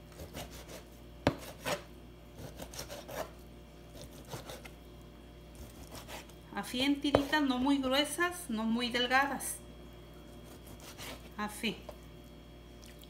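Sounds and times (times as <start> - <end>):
knife slicing raw meat: 0.1 - 4.8, 5.6 - 6.3, 7.1 - 7.5, 10.3 - 11.4
knife knocking on cutting board: 7.1 - 7.3.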